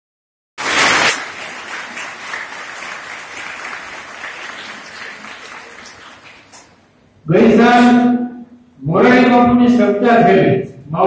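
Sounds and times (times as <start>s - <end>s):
audience clapping: 0.6s - 7.0s.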